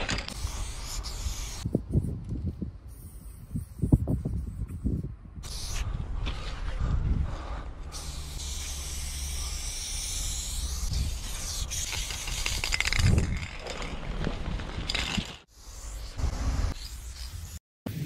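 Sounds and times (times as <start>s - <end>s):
aerosol spray can hissing: 0.3s - 1.7s, 7.9s - 12.7s
steady low rumble: 4.2s - 8.5s.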